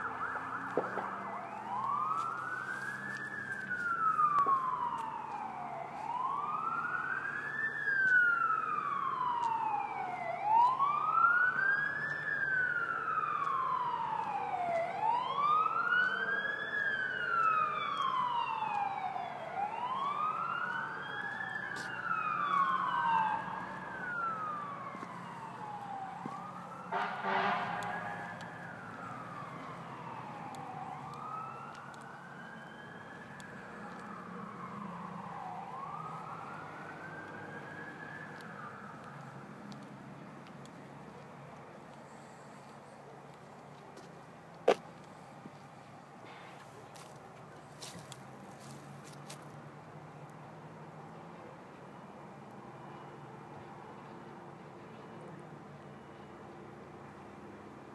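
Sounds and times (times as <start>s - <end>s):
siren blast: 0.0s - 39.9s
emergency siren wailing: 0.0s - 50.0s.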